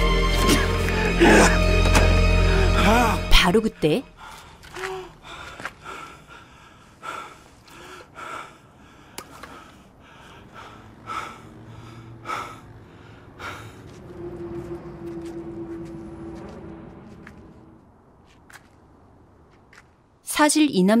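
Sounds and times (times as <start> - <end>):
man panting heavily: 4.2 - 14.1.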